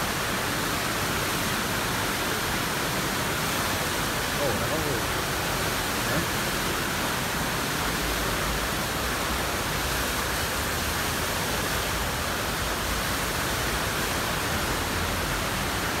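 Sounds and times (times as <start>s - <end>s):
whitewater roaring: 0.0s - 16.0s.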